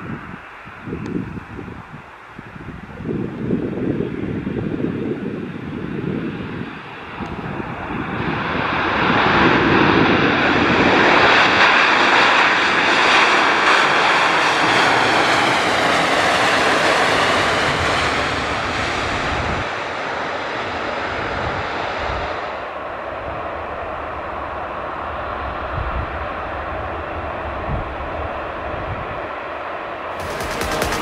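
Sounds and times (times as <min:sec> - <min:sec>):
jet engines running loud: 0:00.0 - 0:31.0
high engine whine: 0:30.2 - 0:31.0.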